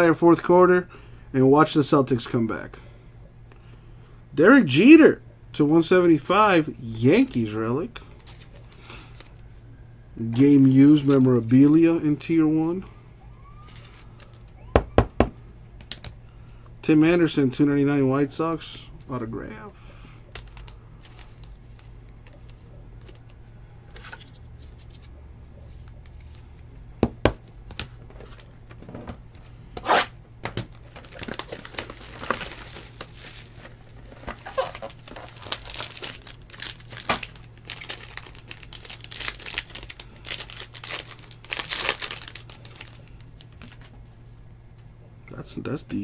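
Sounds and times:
foil wrapper tearing and crinkling: 0:30.8 - 0:43.9.

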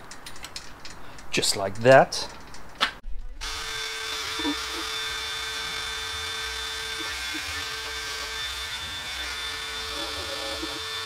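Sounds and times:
power tool motor humming: 0:03.4 - 0:11.0.

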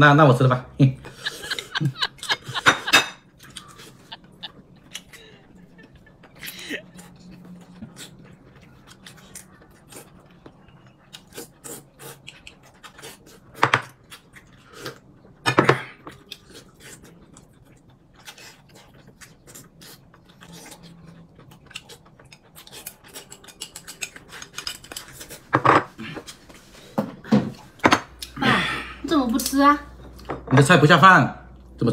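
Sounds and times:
dishes clattering: 0:02.5 - 0:03.3, 0:23.5 - 0:26.0
chewing: 0:03.4 - 0:15.4, 0:16.0 - 0:26.6.

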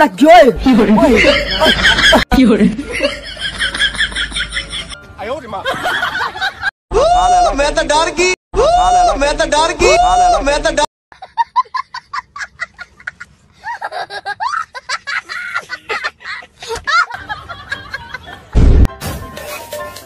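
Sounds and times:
boy laughing: 0:00.8 - 0:04.9, 0:11.1 - 0:18.5
music: 0:04.2 - 0:05.7, 0:18.9 - 0:20.0
loud low thump: 0:18.6 - 0:19.3.

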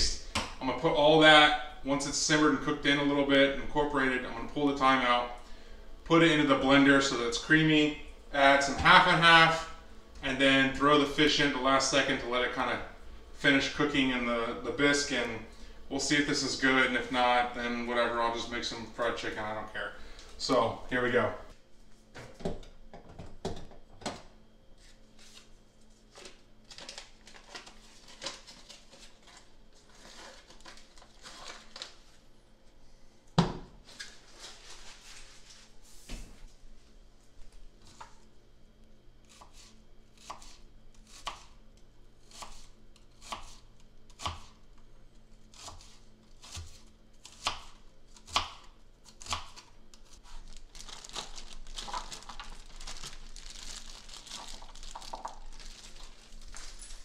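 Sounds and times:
plastic bag crinkling: 0:26.1 - 0:32.2, 0:50.2 - 0:57.0.

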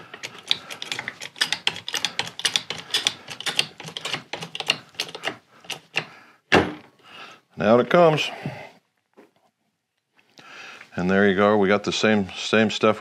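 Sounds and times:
shaft puller clicking: 0:00.1 - 0:06.1.

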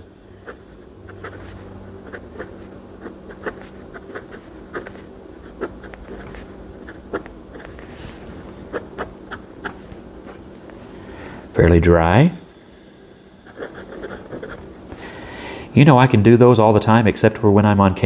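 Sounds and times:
low steady hum: 0:00.0 - 0:18.0
fountain pen scratching on paper: 0:00.4 - 0:10.4, 0:13.4 - 0:14.7.

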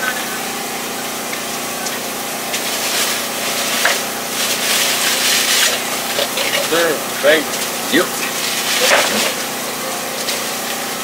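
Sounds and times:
equipment humming: 0:00.0 - 0:11.0.

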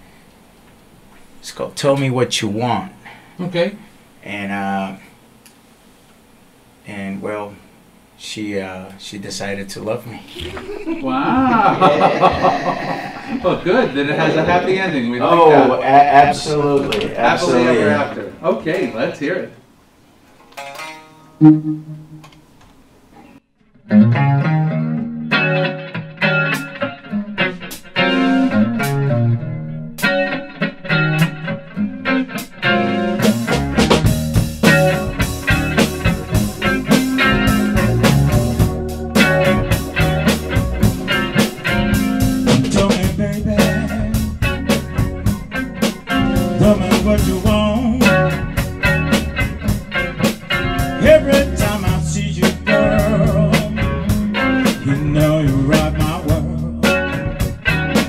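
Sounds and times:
bass guitar: 0:20.6 - 0:22.4, 0:23.7 - 0:58.0
electric guitar: 0:23.2 - 0:58.0
live blues-rock band playing: 0:23.9 - 0:58.0
drum kit: 0:27.5 - 0:29.2, 0:32.4 - 0:58.0.

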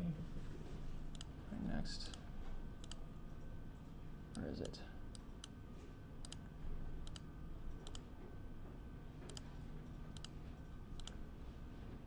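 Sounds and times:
faint electrical hum: 0:00.0 - 0:12.0
computer mouse clicking: 0:01.1 - 0:01.3, 0:02.8 - 0:03.4, 0:06.2 - 0:08.1, 0:09.3 - 0:11.2.

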